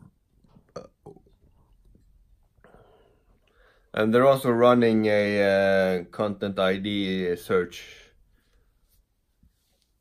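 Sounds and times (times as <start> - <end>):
soft breath: 2.6 - 4.0.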